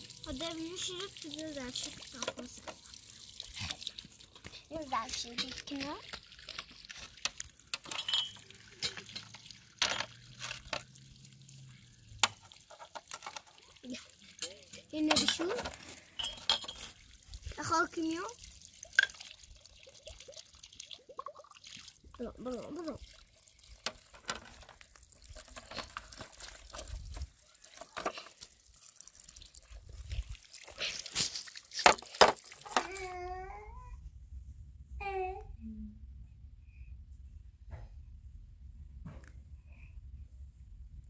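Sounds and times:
hose water splashing on rock: 0:00.0 - 0:33.2
glass clink: 0:07.8 - 0:10.2, 0:16.2 - 0:16.9.

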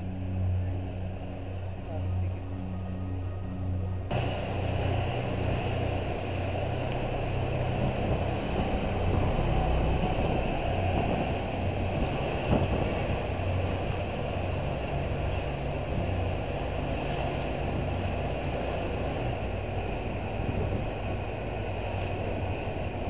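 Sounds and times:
engine and road rumble: 0:00.0 - 0:23.0
traffic noise: 0:00.0 - 0:23.0
wind rushing: 0:04.1 - 0:23.0.

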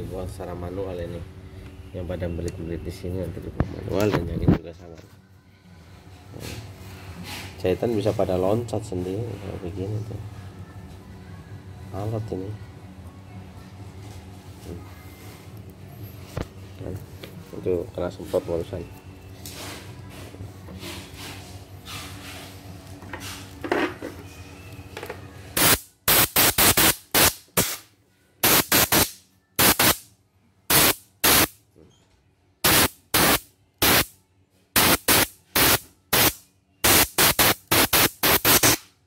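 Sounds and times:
compressed air blow gun blasts: 0:25.6 - 0:30.0, 0:30.7 - 0:31.5, 0:32.6 - 0:34.1, 0:34.8 - 0:38.9.

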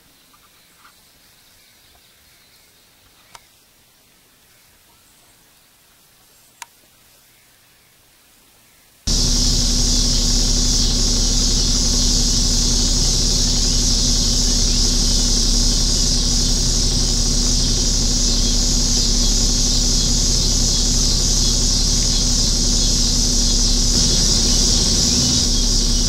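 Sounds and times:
insects chorus shrill hiss: 0:09.1 - 0:26.0
low steady hum: 0:09.1 - 0:26.0.

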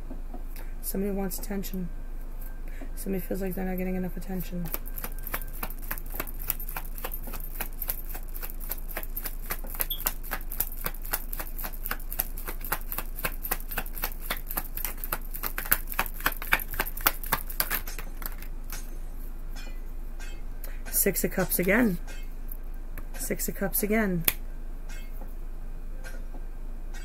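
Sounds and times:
cards being shuffled: 0:04.6 - 0:18.8.

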